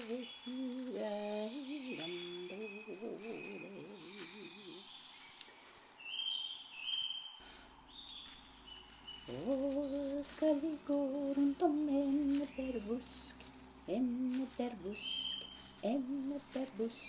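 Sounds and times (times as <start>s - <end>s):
person humming a slow tune: 0.0s - 4.9s, 9.3s - 17.0s.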